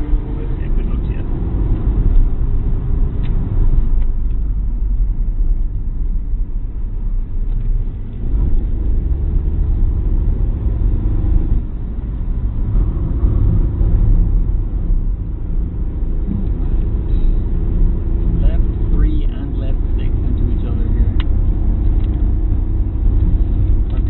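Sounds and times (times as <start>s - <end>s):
car engine and road rumble: 0.0s - 24.0s.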